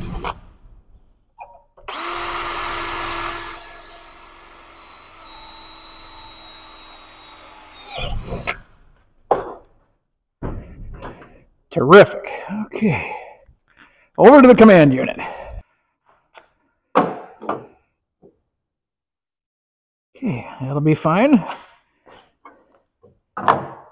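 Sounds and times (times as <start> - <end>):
power drill boring: 1.8 - 8.7.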